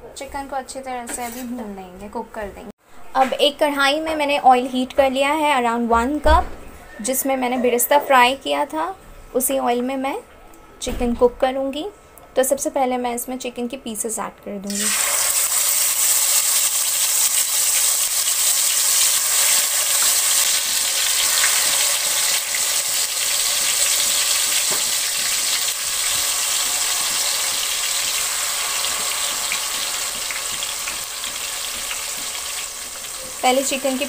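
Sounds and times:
chicken sizzling in hot oil: 14.7 - 34.0.

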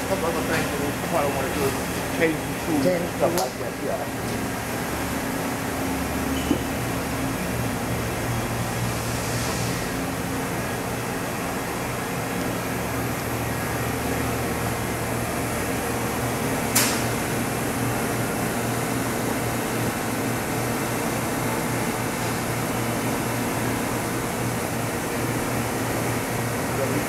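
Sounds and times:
shop machinery hum: 0.0 - 27.0
sharp click: 16.7 - 17.1.

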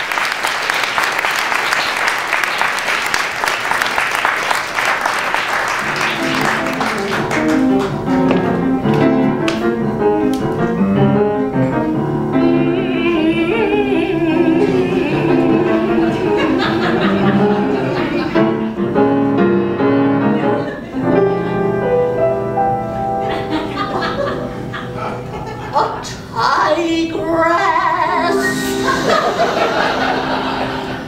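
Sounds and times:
audience applause: 0.0 - 9.6, 15.8 - 18.6
grand piano playing chords: 4.8 - 31.0.

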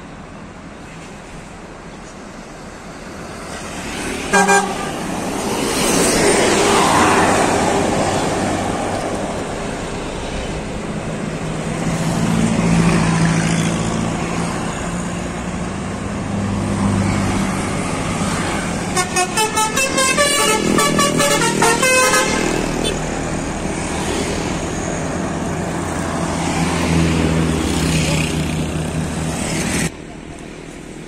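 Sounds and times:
bus engine and tyre noise: 0.0 - 31.0
heavy vehicle engine hum: 0.0 - 31.0
passing traffic: 0.0 - 31.0
bus horn blast: 4.2 - 5.1, 18.8 - 23.0.

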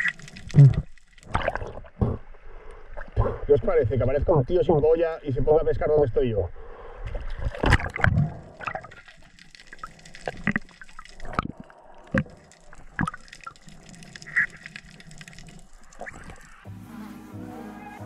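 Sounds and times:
underwater wash of moving water: 0.0 - 3.7, 6.6 - 16.7.

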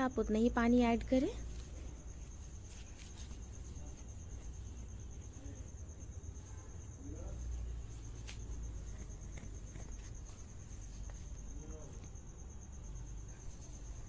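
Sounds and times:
cricket trilling: 0.0 - 14.0.

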